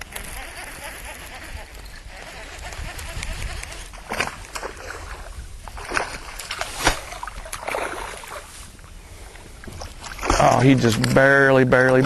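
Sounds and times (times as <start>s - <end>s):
water slapping boat hull: 3.4s - 12.0s.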